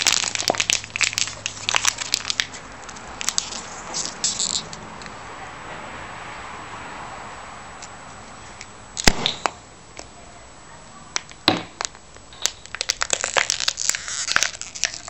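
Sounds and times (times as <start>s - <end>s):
plastic bottle crackling: 0.0s - 4.8s, 11.8s - 15.0s.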